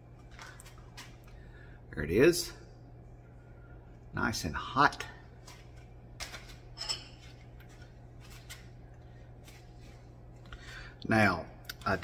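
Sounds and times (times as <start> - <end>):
steady low hum: 0.0 - 12.0
dish and cutlery clinking: 6.8 - 7.2.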